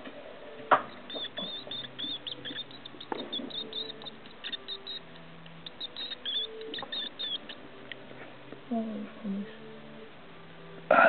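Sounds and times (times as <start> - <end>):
mouse squeaking: 0.7 - 7.8.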